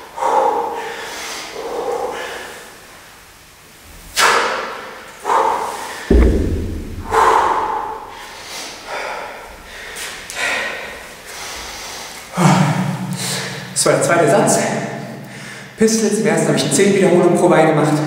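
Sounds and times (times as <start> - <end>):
kettlebell thud on floor: 6.1 - 8.0.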